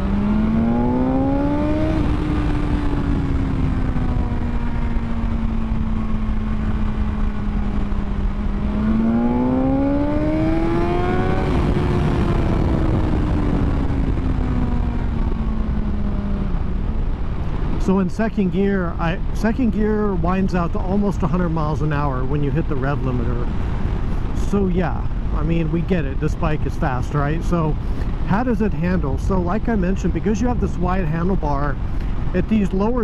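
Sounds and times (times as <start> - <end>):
motorcycle engine revving: 0.0 - 16.9.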